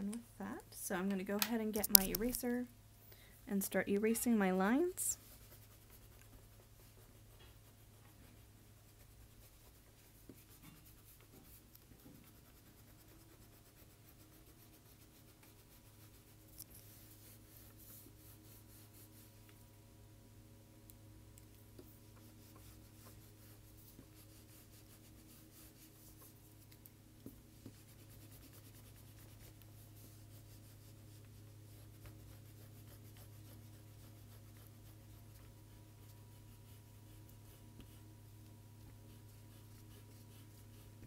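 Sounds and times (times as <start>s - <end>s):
steady low hum: 0.0s - 41.0s
eraser rubbing on paper: 4.1s - 19.4s, 21.9s - 26.7s, 27.5s - 38.1s, 38.8s - 41.0s.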